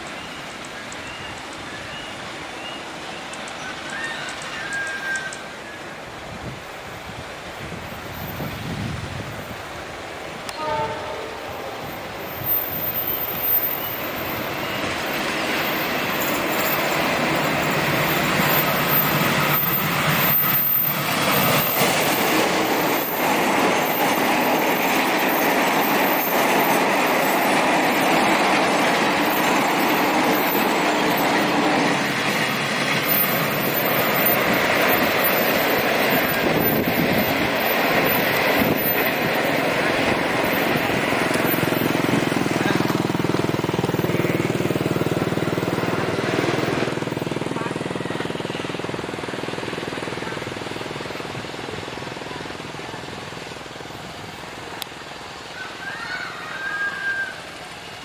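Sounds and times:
passenger train passing: 0:00.0 - 0:58.0
distant train horn: 0:10.5 - 0:12.0
wheels clattering on rails: 0:11.8 - 0:55.5.

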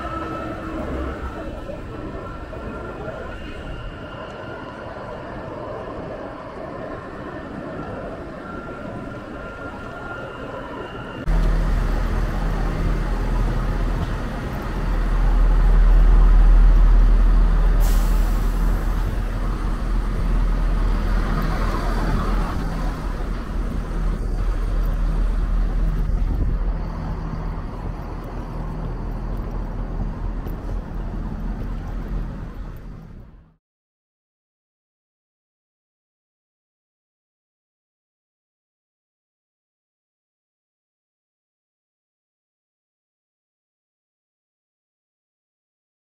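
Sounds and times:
train engines idling: 0:08.2 - 0:33.6.

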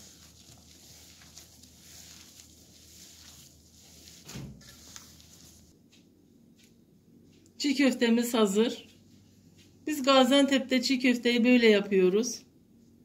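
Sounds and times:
hands kneading dough squishing: 0:00.0 - 0:05.8.

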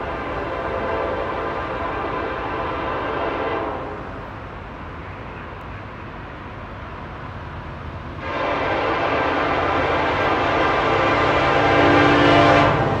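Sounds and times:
train air horn blast: 0:00.0 - 0:04.2, 0:08.2 - 0:13.0
train rumbling: 0:00.0 - 0:13.0.

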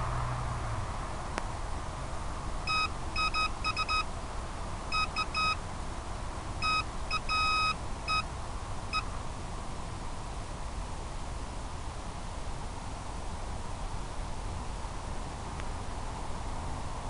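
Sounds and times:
steady hiss: 0:00.0 - 0:17.0
morse code electronic beeps: 0:02.7 - 0:04.1, 0:04.9 - 0:05.6, 0:06.6 - 0:08.3.

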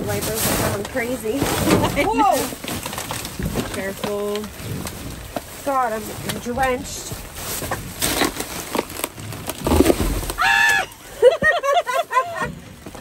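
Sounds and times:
wet items knocking and rustling: 0:00.0 - 0:13.0
laughter: 0:11.0 - 0:12.6.

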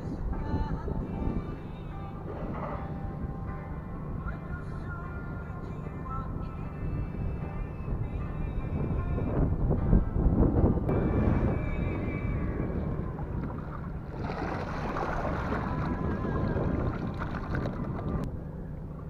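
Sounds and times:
wind rumble on microphone: 0:00.0 - 0:19.0
water splashing off net: 0:13.4 - 0:17.9.

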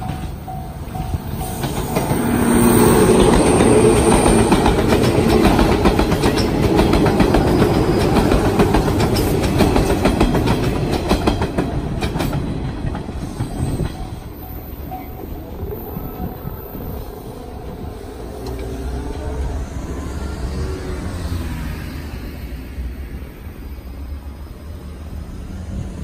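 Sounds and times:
clacks over rail joints: 0:00.0 - 0:16.6
train wheels rumbling on rails: 0:00.0 - 0:26.0.

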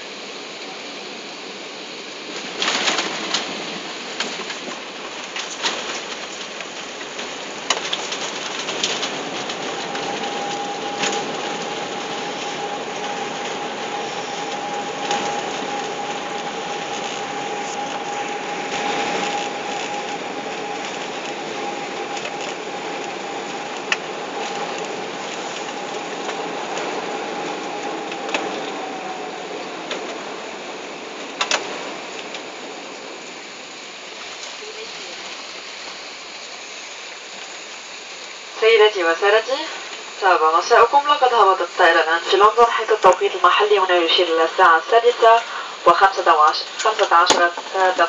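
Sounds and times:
steady whine: 0:00.0 - 0:48.0
engine and airframe rush: 0:08.0 - 0:34.4.

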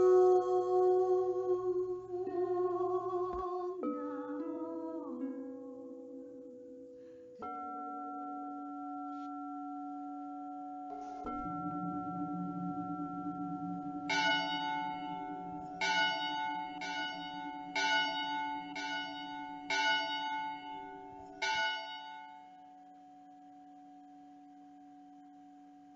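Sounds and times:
singing bowl ringing tone: 0:07.4 - 0:25.9
church bells tolling: 0:11.0 - 0:22.4.

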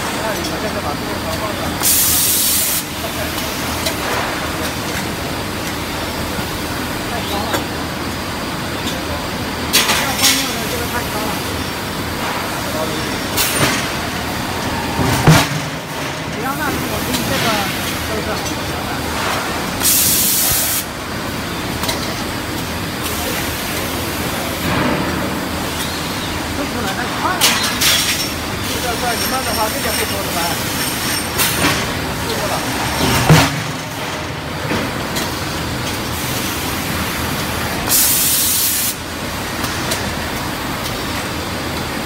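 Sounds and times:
sharp pneumatic hiss: 0:01.8 - 0:02.9, 0:19.8 - 0:20.9, 0:37.9 - 0:39.0.

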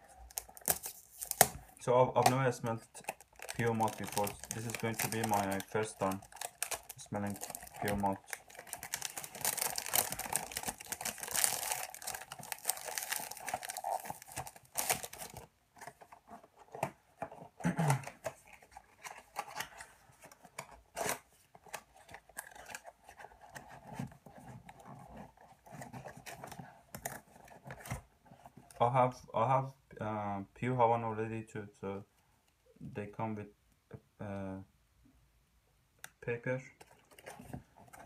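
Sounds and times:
wrapping tearing and crinkling: 0:00.0 - 0:16.4, 0:20.9 - 0:28.0
box clicks and rustles: 0:00.0 - 0:28.7, 0:36.8 - 0:38.0.

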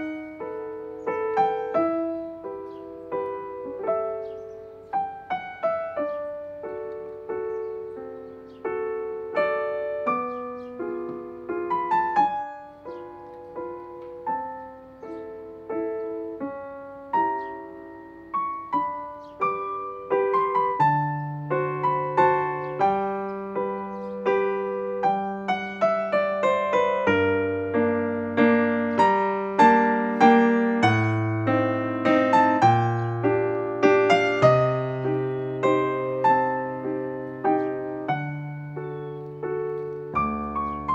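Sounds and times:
slow piano piece: 0:00.0 - 0:40.9.

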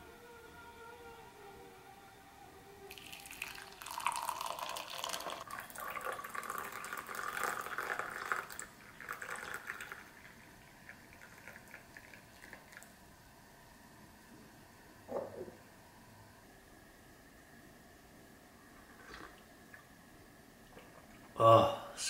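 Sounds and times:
coffee pouring into a glass mug: 0:02.9 - 0:13.0
faint liquid drips: 0:02.9 - 0:13.0, 0:18.8 - 0:19.9.

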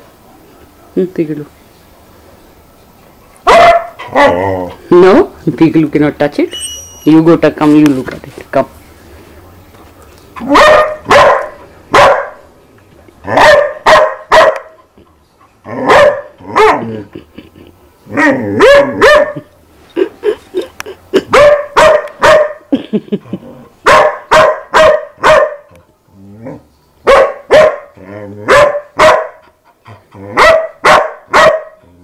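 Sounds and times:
dog barking: 0:03.4 - 0:04.4, 0:10.4 - 0:12.5, 0:13.3 - 0:14.8, 0:15.8 - 0:16.9, 0:18.2 - 0:19.5, 0:21.3 - 0:22.7, 0:23.8 - 0:25.7, 0:27.0 - 0:29.4, 0:30.4 - 0:31.8
dog yipping: 0:03.5 - 0:04.3, 0:06.5 - 0:07.2, 0:10.4 - 0:12.4, 0:13.4 - 0:14.7, 0:15.9 - 0:16.8, 0:18.6 - 0:19.4, 0:21.3 - 0:22.6, 0:23.9 - 0:25.6, 0:27.1 - 0:27.9, 0:28.5 - 0:29.4, 0:30.4 - 0:31.8.

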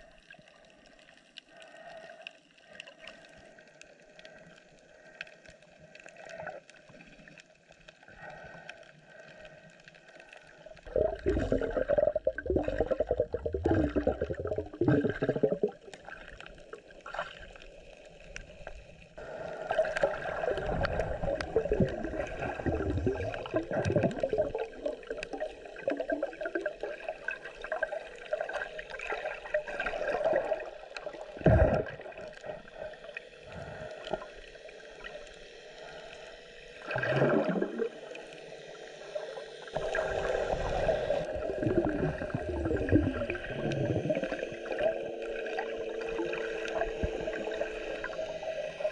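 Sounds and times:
faint steady hum: 0:00.0 - 0:48.9
water gurgling and bubbling: 0:10.7 - 0:35.3, 0:36.8 - 0:48.9.

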